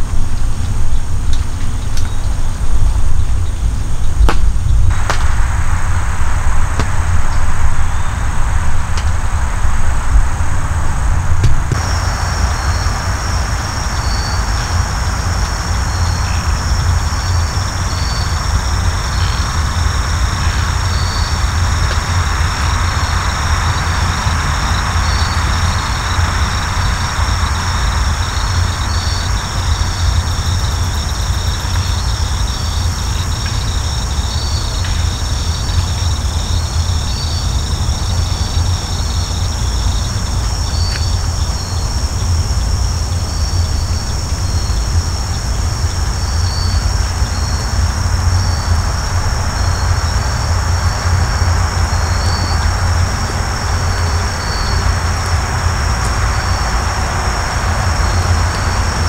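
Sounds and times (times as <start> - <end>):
low rumble: 0.0 - 32.2
insects trilling and chirping: 0.0 - 59.0.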